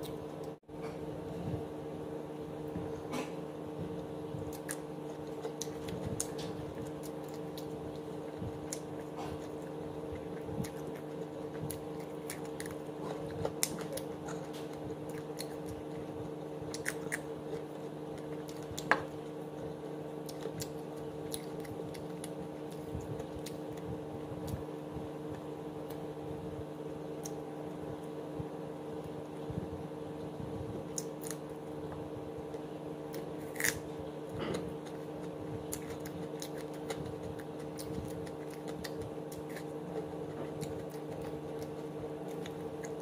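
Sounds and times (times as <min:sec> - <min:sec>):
person biting and chewing: 0:04.5 - 0:24.6, 0:30.9 - 0:31.5, 0:33.0 - 0:43.0.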